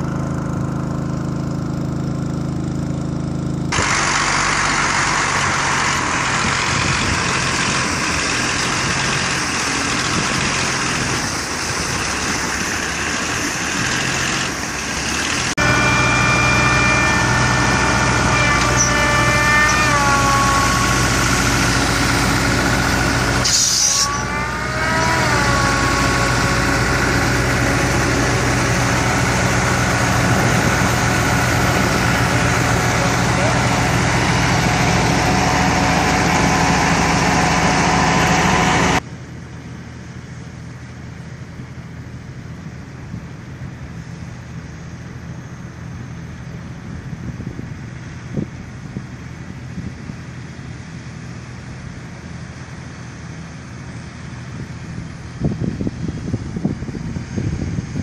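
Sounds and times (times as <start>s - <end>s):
high machine whine: 0.0s - 39.0s
farm machinery engine hum: 0.0s - 58.0s
wind noise on microphone: 6.4s - 8.3s, 46.7s - 50.8s, 54.6s - 58.0s.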